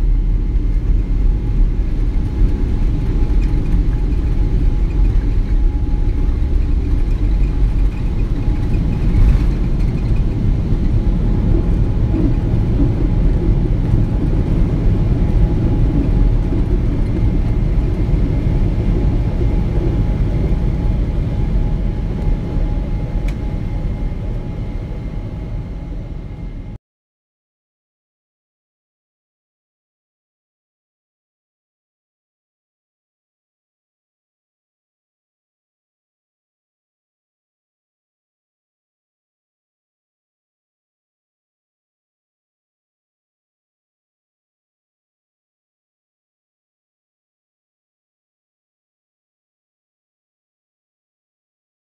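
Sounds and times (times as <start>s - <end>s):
jet engines rumbling at takeoff: 0.0s - 26.8s.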